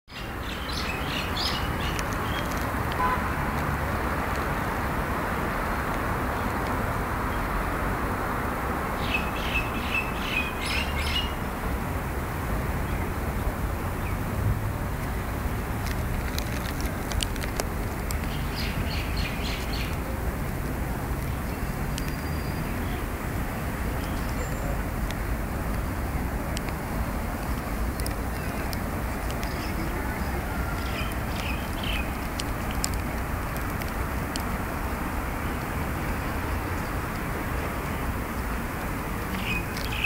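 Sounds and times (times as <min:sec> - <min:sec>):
bird chirping: 0:00.1 - 0:02.5, 0:18.3 - 0:20.0, 0:21.4 - 0:23.0, 0:30.8 - 0:32.1, 0:39.4 - 0:40.0
road traffic rumble: 0:00.1 - 0:40.0
sharp clicks: 0:30.8 - 0:34.6.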